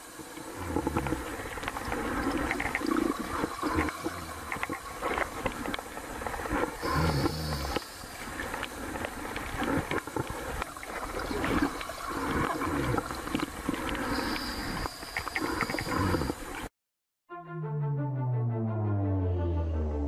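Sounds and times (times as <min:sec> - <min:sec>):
gurgling underwater noise: 0:00.0 - 0:16.7
underwater clicks: 0:00.7 - 0:16.7.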